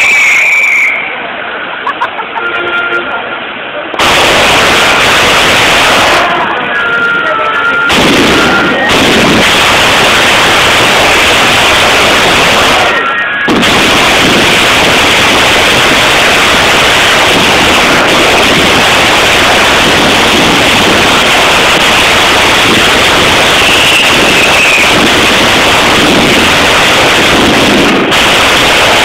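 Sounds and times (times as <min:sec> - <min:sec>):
fireworks crackling rush: 0:00.0 - 0:29.0.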